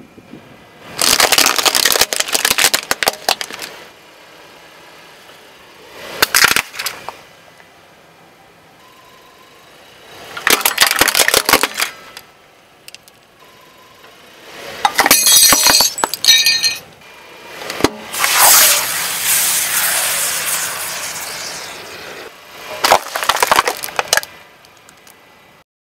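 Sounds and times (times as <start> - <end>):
sharp cracks: 1.0 - 3.8, 6.2 - 7.2, 10.4 - 12.3, 17.8 - 21.9, 22.8 - 25.2
glass-like shattering: 14.8 - 16.9
crumbling rush: 18.1 - 24.4.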